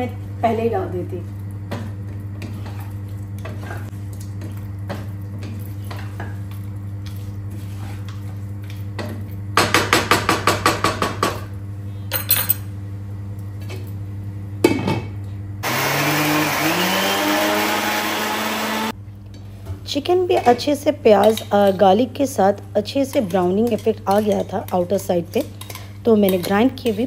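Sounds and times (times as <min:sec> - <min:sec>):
wooden spatula scraping pot: 0:07.0 - 0:09.1
mixer grinder motor whine: 0:15.6 - 0:19.0.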